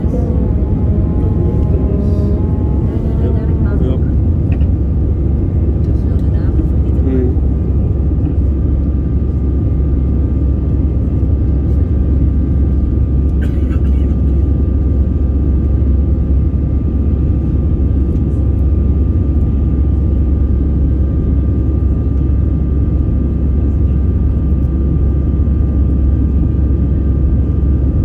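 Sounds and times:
thin engine whine: 0.0s - 6.2s
jet cabin rumble: 0.0s - 28.0s.

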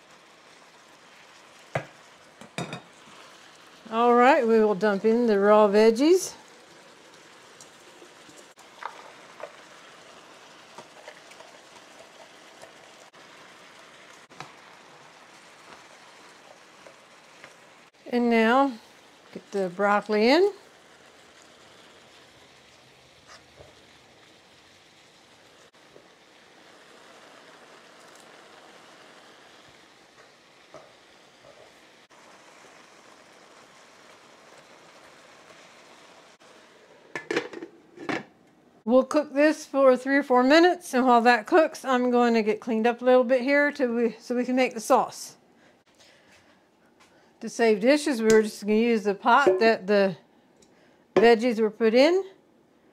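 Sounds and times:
food sizzling in a skillet: 0.0s - 38.1s, 47.2s - 50.0s
glass lid clattering on skillet: 1.8s - 2.9s
vegetables clattering into pan: 37.1s - 38.4s.

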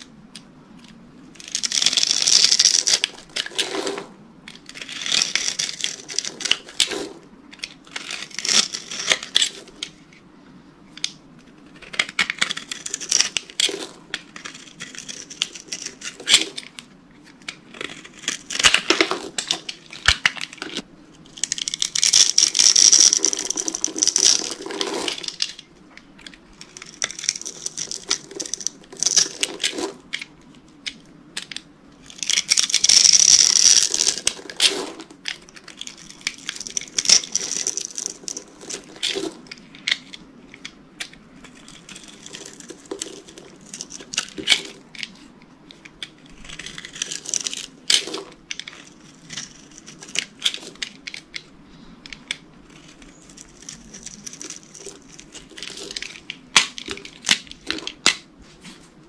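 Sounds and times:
knife blade crunching through soap: 7.9s - 9.5s, 11.7s - 16.6s, 46.3s - 51.0s.

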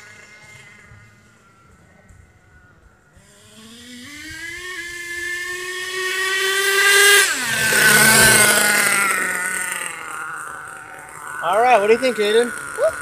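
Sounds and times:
toy truck engine revving: 3.1s - 13.0s.

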